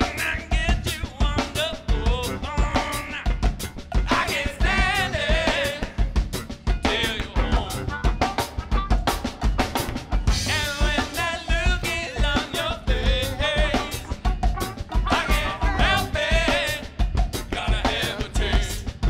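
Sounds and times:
drum kit beat: 0:00.0 - 0:19.0
funk band playing: 0:00.0 - 0:19.0
person singing: 0:10.5 - 0:16.9.

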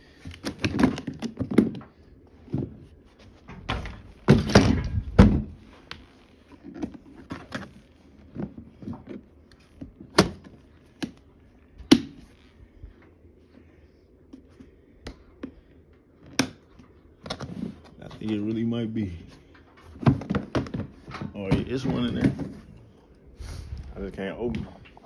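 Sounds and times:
household items knocking and clattering: 0:00.4 - 0:02.9, 0:03.5 - 0:05.6, 0:19.7 - 0:22.8.

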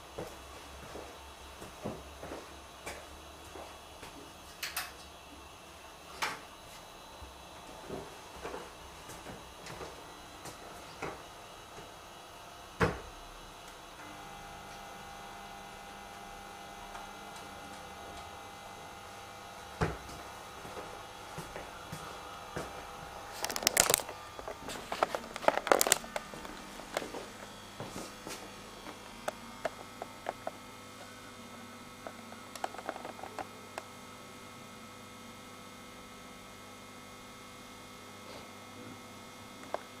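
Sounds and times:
steady electrical hum: 0:00.0 - 0:40.0
camera handling rustles and knocks: 0:23.3 - 0:27.5.

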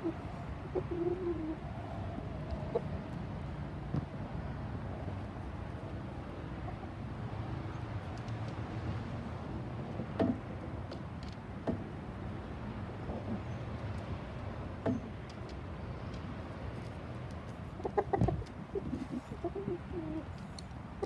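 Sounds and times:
rooster clucking: 0:00.0 - 0:01.6, 0:02.5 - 0:03.1, 0:17.7 - 0:20.3
low outdoor rumble: 0:00.0 - 0:21.0.

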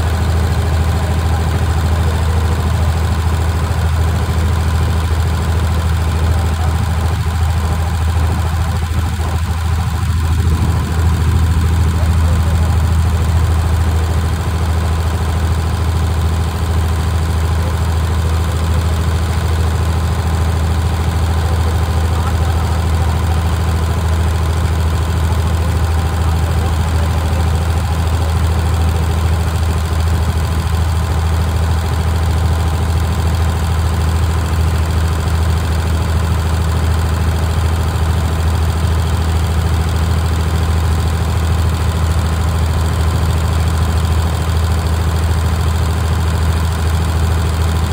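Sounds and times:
boat engine droning: 0:00.0 - 0:33.8.

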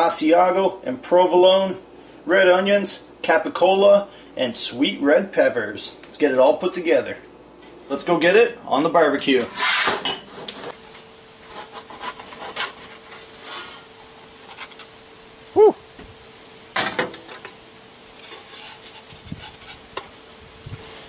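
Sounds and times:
pizza peel scraping on stone: 0:09.5 - 0:15.0, 0:18.1 - 0:20.2.

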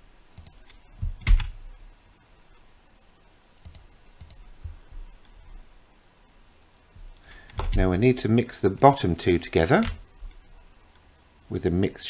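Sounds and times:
keyboard and mouse clicks: 0:00.3 - 0:01.6, 0:03.6 - 0:04.4.

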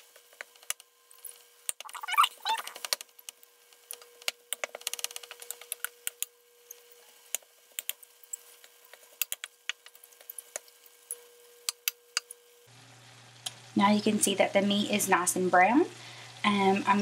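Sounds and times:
meat crackling in pan: 0:02.7 - 0:13.7.

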